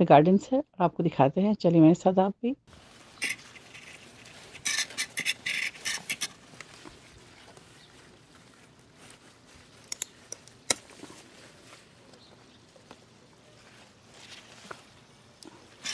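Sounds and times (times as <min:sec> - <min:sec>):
leaves rustling: 0:02.7 - 0:15.9
garden shears snipping: 0:03.2 - 0:13.2.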